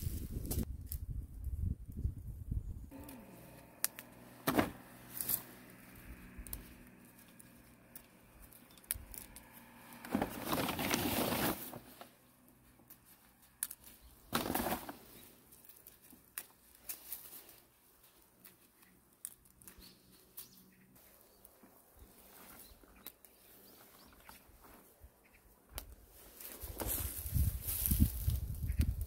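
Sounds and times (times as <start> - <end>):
shoots rustling and crinkling: 4.4 - 25.2.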